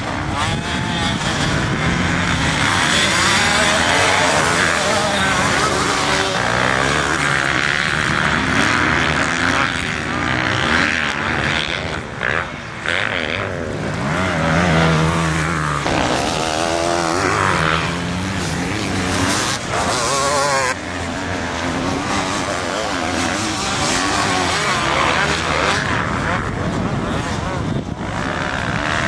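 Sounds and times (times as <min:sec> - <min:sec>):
dirt bike engines revving: 0:00.0 - 0:29.0.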